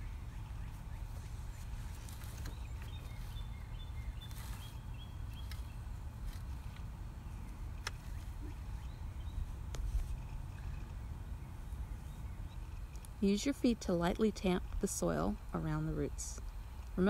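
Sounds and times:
steady low rumble: 0.0s - 17.0s
rake scraping soil: 0.8s - 8.7s
faint bird chirps: 7.2s - 13.0s.

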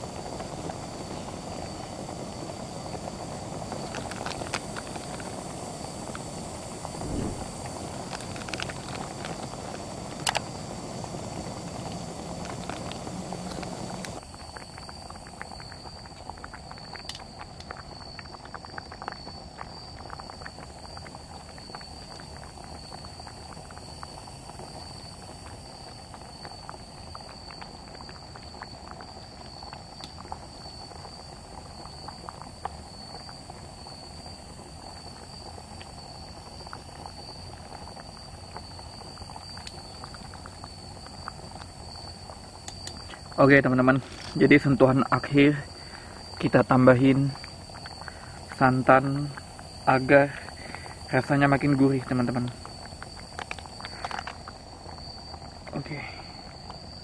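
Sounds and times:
soup bubbling in pot: 0.0s - 57.0s
steady high-pitched tone: 6.8s - 8.5s.

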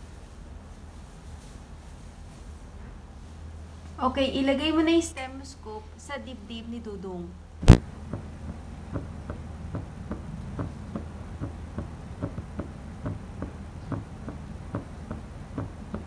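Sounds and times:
low steady hum: 0.0s - 16.0s
heartbeat thumps: 7.6s - 16.0s.

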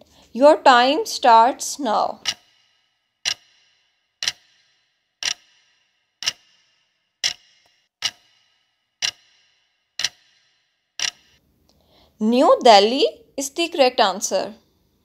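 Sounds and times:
clock ticking: 2.0s - 11.4s.

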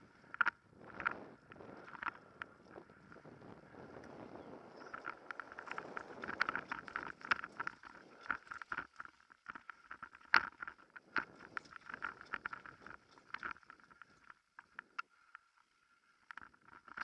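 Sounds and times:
wind on microphone: 0.0s - 8.3s
mountain bike rattling: 0.1s - 15.8s.

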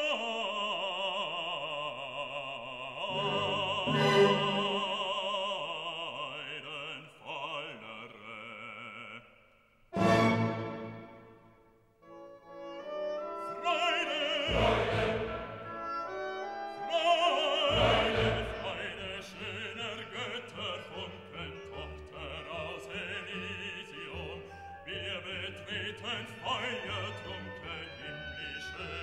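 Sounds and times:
operatic voice singing: 0.0s - 9.4s, 13.3s - 29.0s
orchestra playing: 3.1s - 5.0s, 10.0s - 11.5s, 12.1s - 24.3s.

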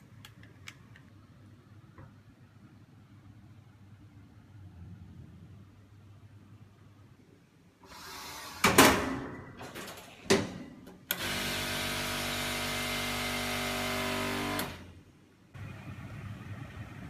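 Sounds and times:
vacuum pump running: 11.1s - 14.8s.

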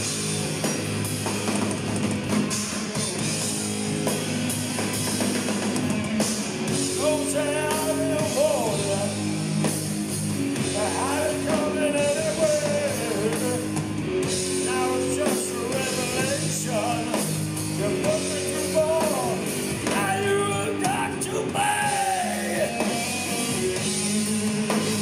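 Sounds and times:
distorted electric guitars: 0.0s - 25.0s
drums: 0.0s - 25.0s
man singing: 7.0s - 9.3s, 10.7s - 13.8s, 14.6s - 23.0s.

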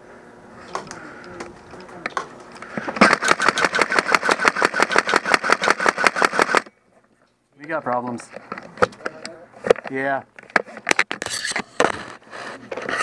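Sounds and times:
airsoft gun full-auto burst: 3.0s - 6.7s.

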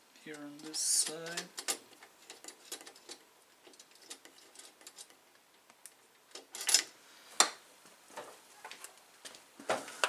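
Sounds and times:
metal hardware clicking: 0.3s - 5.2s, 5.8s - 6.9s.

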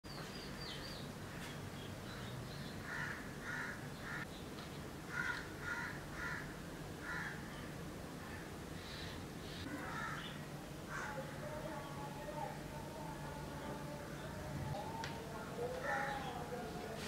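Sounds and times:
crows cawing: 2.8s - 4.3s, 5.1s - 7.5s, 8.2s - 11.3s, 15.8s - 16.5s.

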